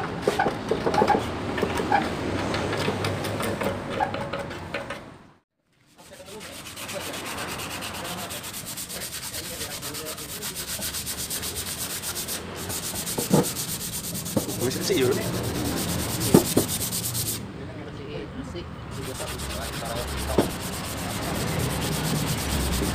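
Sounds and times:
sandpaper rubbing on metal: 0:05.9 - 0:17.4, 0:18.9 - 0:22.9.

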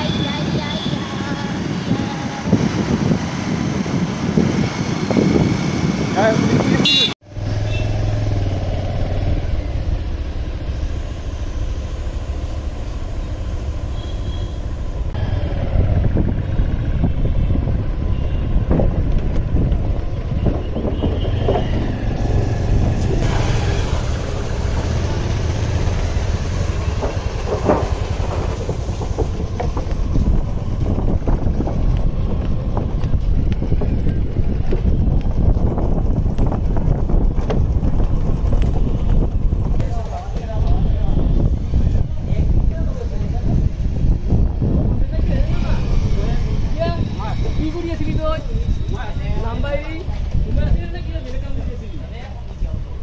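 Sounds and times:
wind on microphone: 0:00.0 - 0:07.1, 0:15.1 - 0:53.0
sharp knocks and rattles: 0:26.6 - 0:32.5.

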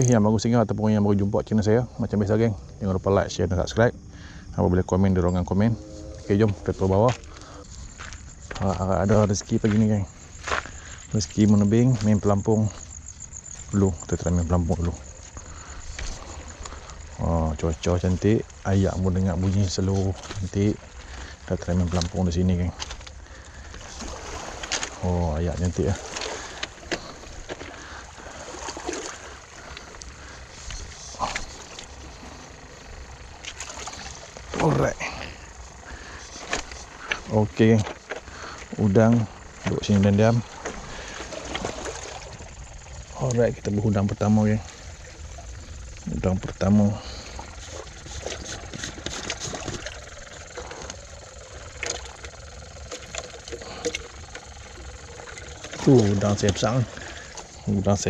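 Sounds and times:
water washing against breakwater: 0:06.4 - 0:58.0
air pump humming and bubbling: 0:07.0 - 0:58.0.

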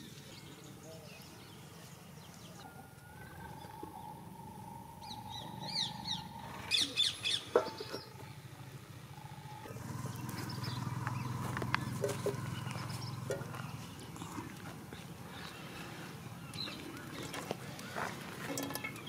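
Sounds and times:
birds chirping: 0:00.0 - 0:19.0
metal pan knock on stones: 0:18.5 - 0:19.0.

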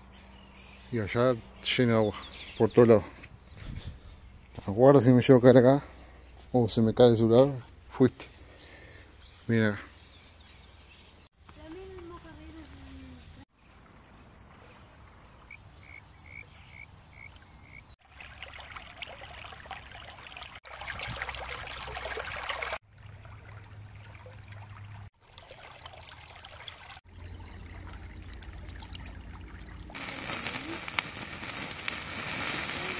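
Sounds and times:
creek water trickling: 0:17.1 - 0:32.9
wood fire crackling: 0:29.9 - 0:32.9.

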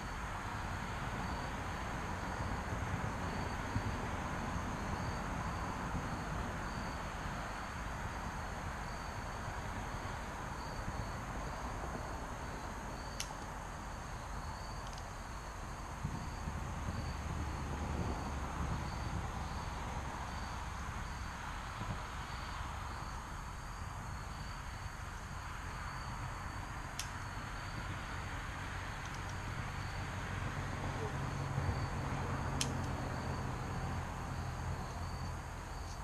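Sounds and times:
crickets chirping: 0:00.0 - 0:36.0
low steady rumble: 0:00.0 - 0:36.0
faint sharp clicks: 0:27.0 - 0:27.2, 0:32.6 - 0:33.0.

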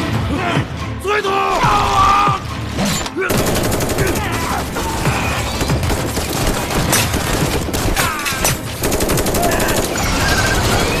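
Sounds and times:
film music score: 0:00.0 - 0:11.0
rapid automatic gunfire: 0:03.3 - 0:04.8, 0:05.6 - 0:08.0, 0:08.8 - 0:11.0.

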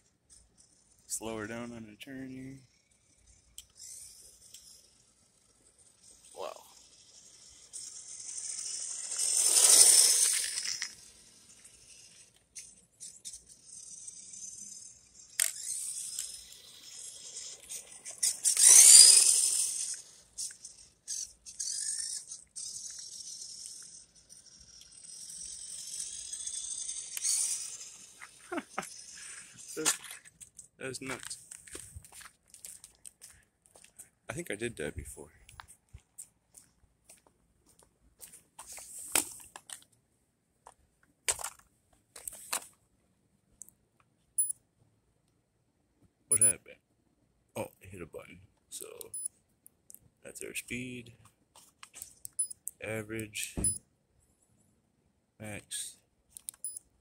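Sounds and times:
sharp click: 0:56.4 - 0:56.8.

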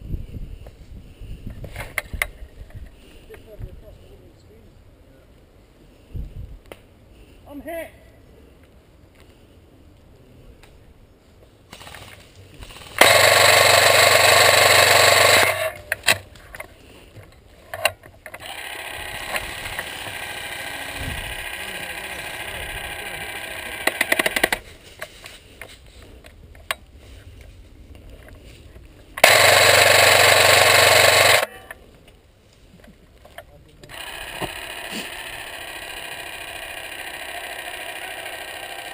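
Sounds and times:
scattered clicks: 0:11.7 - 0:16.7, 0:17.7 - 0:26.8, 0:29.2 - 0:31.8
airsoft gun full-auto bursts: 0:12.7 - 0:16.2, 0:18.4 - 0:24.6, 0:29.2 - 0:31.7, 0:33.9 - 0:38.9
steady rattling: 0:12.8 - 0:16.2, 0:29.2 - 0:31.5.

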